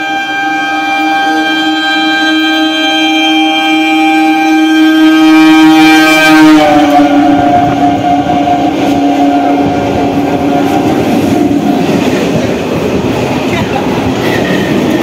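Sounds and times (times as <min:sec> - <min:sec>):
train horn chord: 0:00.0 - 0:11.9
train running rumble: 0:00.0 - 0:15.0.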